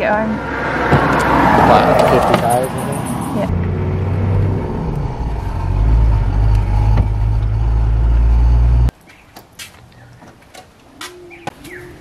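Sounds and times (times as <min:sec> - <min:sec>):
vehicle engine and road rumble: 0:00.0 - 0:10.9.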